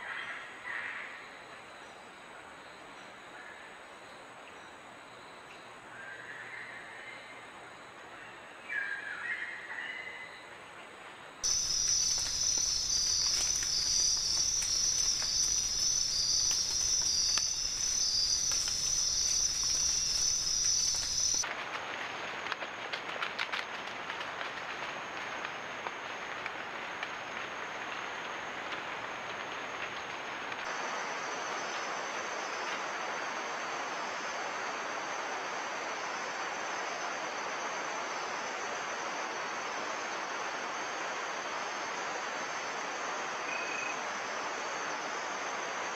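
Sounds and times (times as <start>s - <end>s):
constant hiss: 0.0s - 45.9s
insects trilling: 11.4s - 21.5s, 23.1s - 45.9s.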